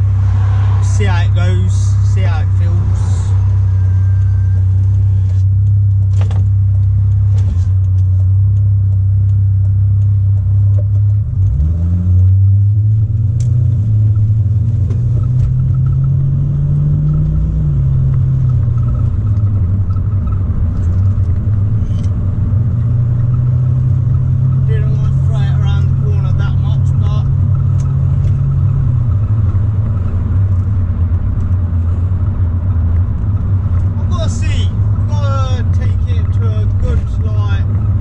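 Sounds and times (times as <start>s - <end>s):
car engine from inside cabin: 0.0s - 38.0s.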